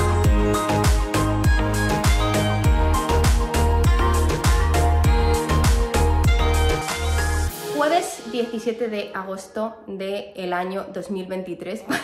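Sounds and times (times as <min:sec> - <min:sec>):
music with kick-drum beat: 0:00.0 - 0:07.8.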